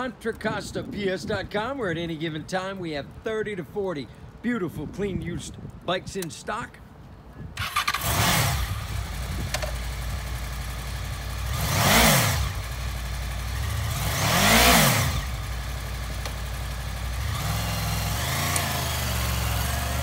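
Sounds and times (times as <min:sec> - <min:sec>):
engine throttle blips: 0:07.6 - 0:20.0
motorcycle engine starting and idling: 0:07.6 - 0:20.0.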